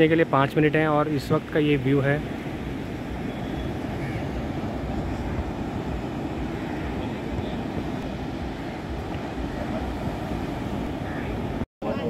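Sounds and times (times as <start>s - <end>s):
surf breaking on shore: 0.2s - 12.0s
wind buffeting microphone: 2.2s - 12.0s.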